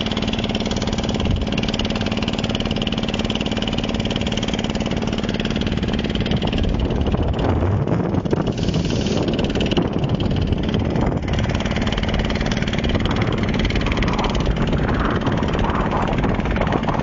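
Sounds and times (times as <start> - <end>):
boat engine humming: 0.0 - 17.0
boat moving through water: 0.0 - 17.0.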